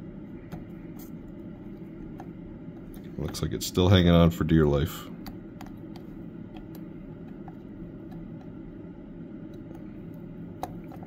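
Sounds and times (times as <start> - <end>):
extractor fan whirring: 0.0 - 11.0
faint clicks and taps: 5.2 - 8.6, 9.5 - 11.0.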